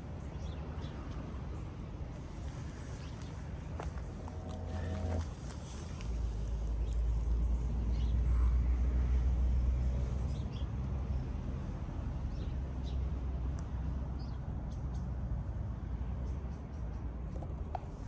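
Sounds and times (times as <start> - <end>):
steady low rumble: 0.0 - 9.6.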